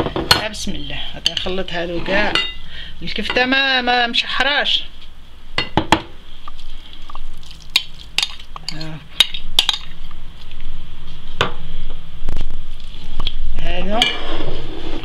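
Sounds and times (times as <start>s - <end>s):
metal spoon clinking on ceramic bowls: 2.3s - 2.6s.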